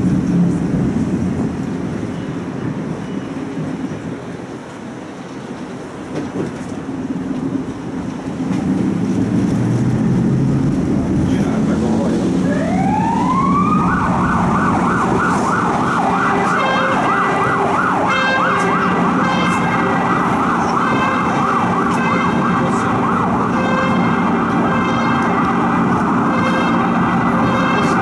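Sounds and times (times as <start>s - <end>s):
emergency siren sweeping: 6.9s - 28.0s.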